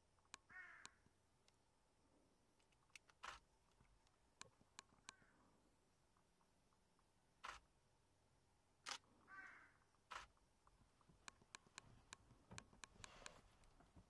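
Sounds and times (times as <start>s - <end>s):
camera shutter clicks: 3.0s - 3.4s, 7.4s - 7.6s, 8.8s - 9.0s, 10.1s - 10.3s.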